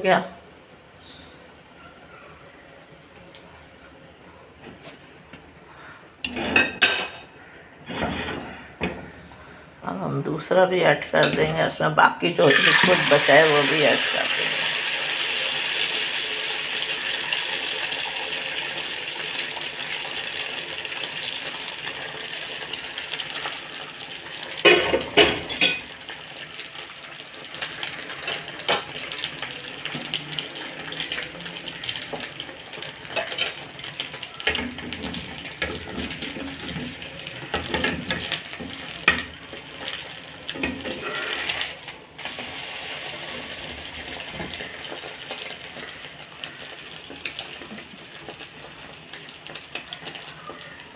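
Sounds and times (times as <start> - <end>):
metal spatula scraping pan: 6.2 - 8.8, 40.6 - 41.8
batter sizzling in frying pan: 12.4 - 50.9.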